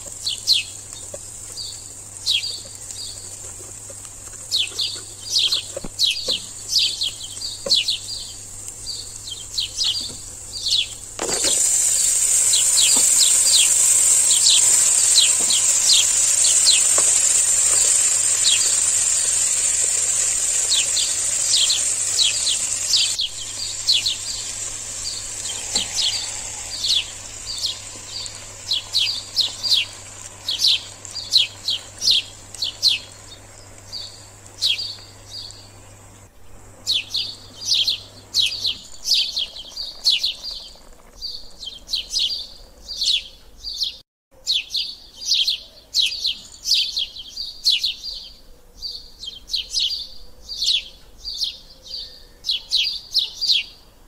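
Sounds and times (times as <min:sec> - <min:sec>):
sizzling hiss: 0:00.0 - 0:43.0
birds chirping: 0:00.0 - 0:53.9.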